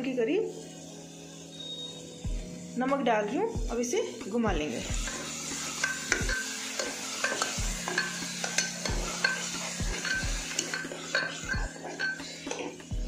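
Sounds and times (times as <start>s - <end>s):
oil sizzling: 0.0s - 13.0s
steel ladle scraping a pot: 0.4s - 2.2s, 4.8s - 12.9s.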